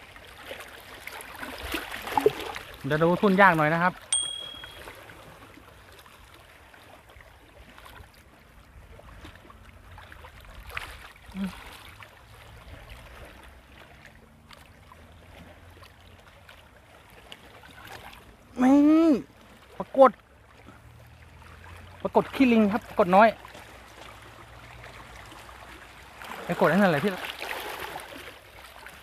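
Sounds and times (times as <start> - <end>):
water lapping along shore: 0.0 - 29.0
short bell-like ding: 4.1 - 4.9.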